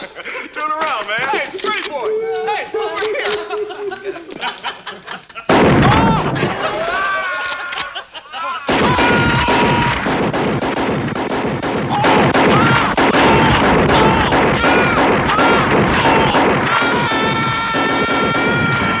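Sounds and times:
men laughing: 0:00.0 - 0:10.0, 0:12.0 - 0:19.0
voices: 0:00.0 - 0:10.1, 0:11.7 - 0:19.0
shotguns firing: 0:05.5 - 0:06.8, 0:08.7 - 0:19.0.

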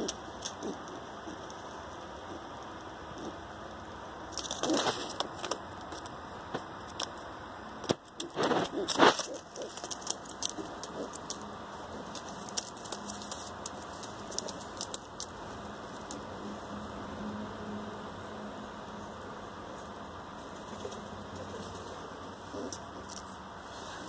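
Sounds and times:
pigeons shuffling with light clicks: 0:08.0 - 0:16.4, 0:20.4 - 0:23.5
paper rustling: 0:08.1 - 0:15.3.

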